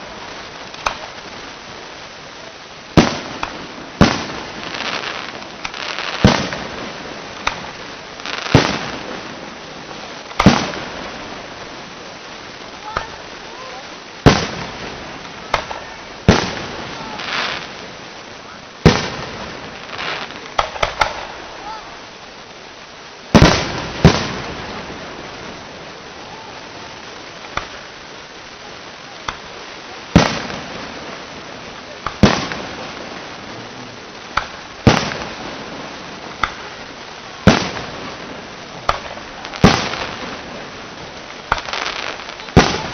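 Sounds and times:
firework shells bursting: 0.6 - 1.2, 2.9 - 9.4, 10.2 - 11.6, 14.2 - 17.8, 18.8 - 21.6, 27.4 - 28.0, 29.2 - 42.9
quiet firework pop: 0.7 - 1.1, 3.0 - 4.2, 7.4 - 7.7, 15.2 - 16.6, 20.4 - 21.3, 27.5 - 27.8, 29.2 - 29.5, 32.0 - 32.7, 34.3 - 35.3, 36.4 - 36.7, 41.5 - 42.9
sharp pops: 0.7 - 1.2, 3.0 - 8.9, 10.3 - 10.9, 14.2 - 17.7, 19.9 - 21.4, 27.4 - 28.0, 29.2 - 29.5, 31.9 - 32.8, 34.2 - 35.4, 36.3 - 36.8, 38.8 - 40.4, 41.3 - 42.9.

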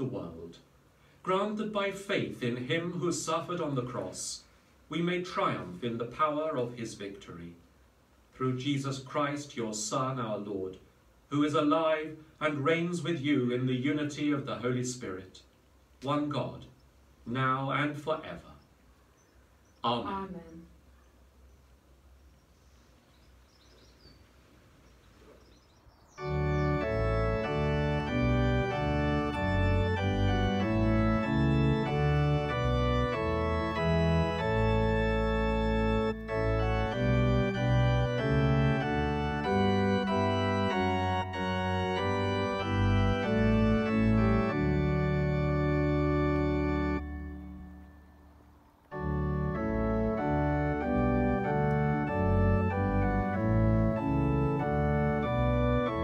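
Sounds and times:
organ chords: 0.0 - 7.5, 25.3 - 56.0.

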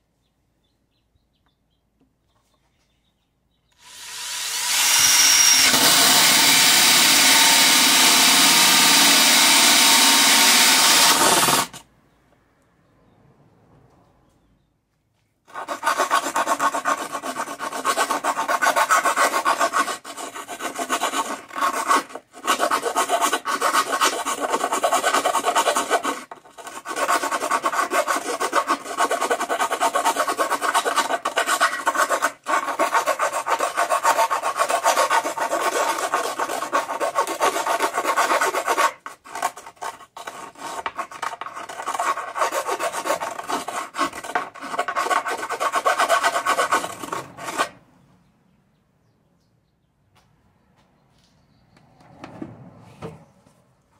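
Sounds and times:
hand file rasping: 3.8 - 11.8, 15.5 - 47.8.

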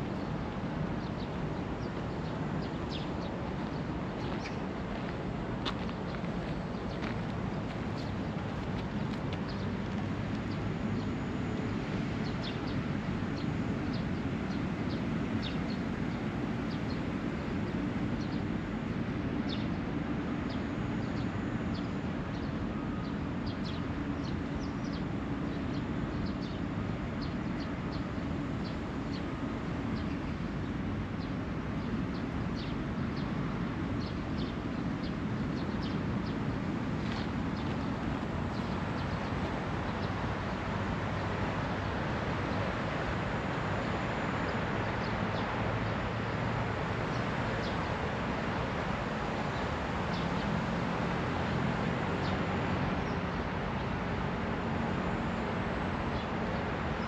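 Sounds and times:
distant traffic rumble: 33.1 - 57.0.

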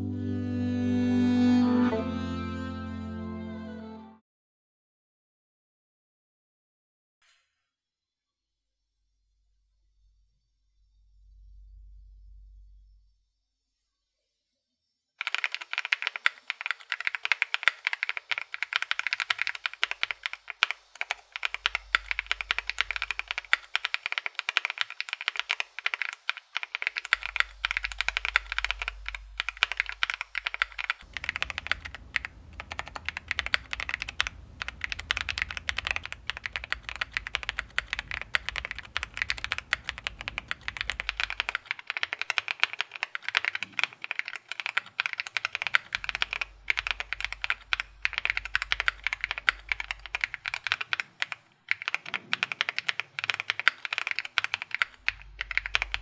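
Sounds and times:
fast typing on mechanical keyboard: 15.2 - 56.0.

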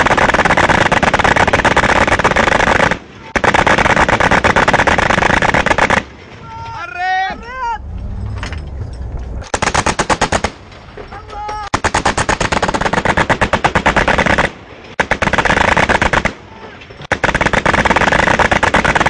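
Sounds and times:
autocannons firing rapid bursts: 0.0 - 6.2, 9.5 - 10.7, 11.7 - 16.4, 17.0 - 19.0.

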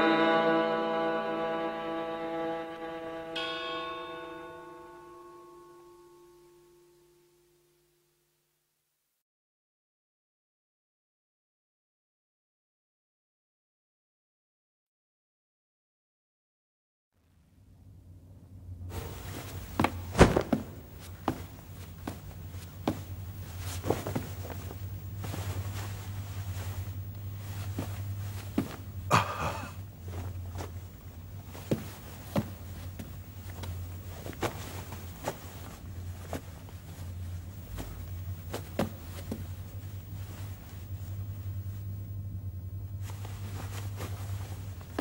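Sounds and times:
low hum: 17.2 - 45.0
rustling: 18.9 - 42.2, 42.8 - 45.0
footsteps on hard floor: 19.0 - 29.0, 31.6 - 37.1.

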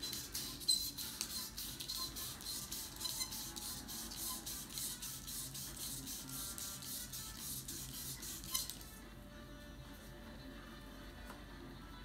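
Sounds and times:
sandpaper rasping: 0.0 - 8.8.

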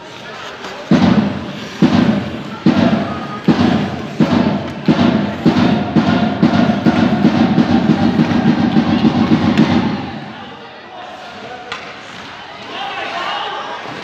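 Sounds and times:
light quick drum beats: 0.9 - 10.3
drumbeat echoing in a hall: 0.9 - 10.5.

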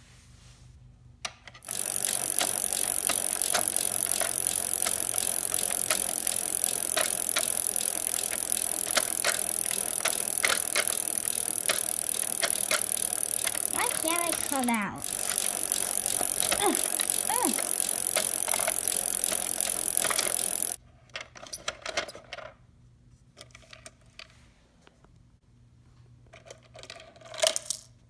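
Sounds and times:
clicking and rattling: 1.4 - 20.8
toy mechanism whirring: 1.6 - 20.8.

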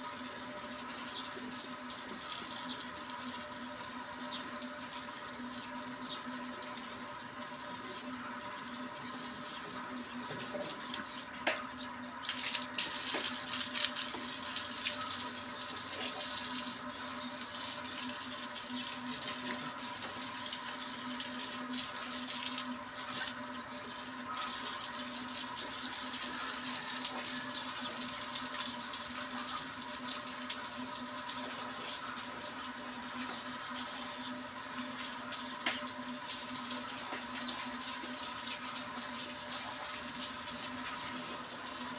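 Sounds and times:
hose water splashing on concrete: 12.2 - 41.9.

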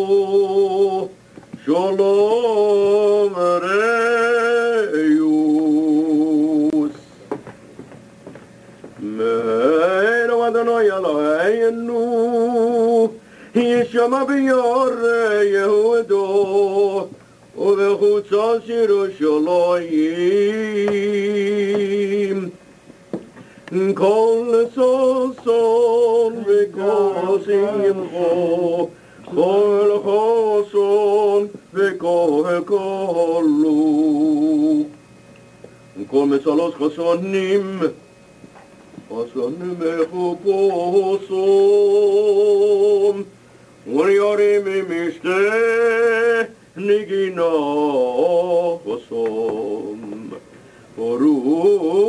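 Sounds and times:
man chanting: 23.8 - 34.9.

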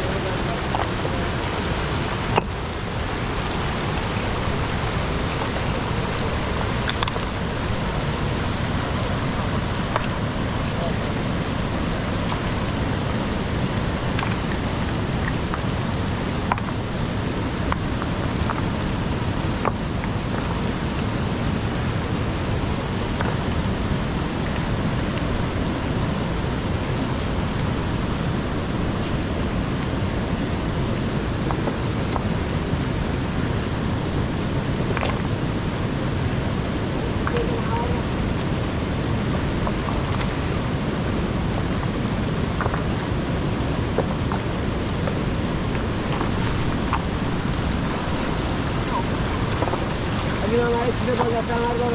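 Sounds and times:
river rushing over stones: 0.0 - 51.9.

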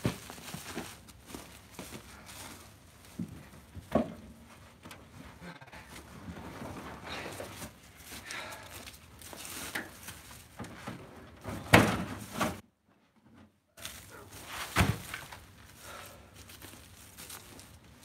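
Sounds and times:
scuffing and rustling: 0.0 - 12.6, 13.8 - 18.0
wooden thunks of firewood: 14.7 - 15.4.

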